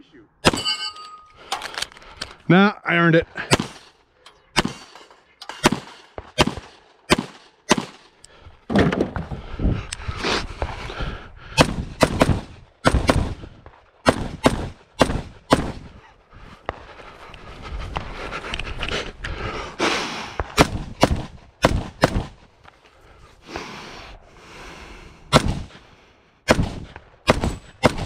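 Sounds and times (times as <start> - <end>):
pistol shots: 3.5 - 3.9, 4.6 - 8.2, 11.6 - 13.4, 14.0 - 15.9, 20.4 - 22.4, 25.3 - 25.7, 26.5 - 28.0
rifle shots: 3.5 - 4.0, 4.6 - 8.2, 11.6 - 13.4, 14.0 - 15.9, 20.4 - 22.4, 25.3 - 25.7, 26.5 - 28.0.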